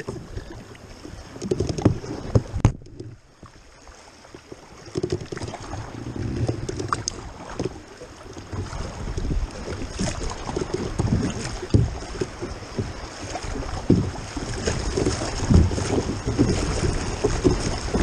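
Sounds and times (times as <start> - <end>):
paddle strokes: 0.0 - 18.0
water splashing against hull: 0.0 - 18.0
wind on microphone: 5.0 - 18.0.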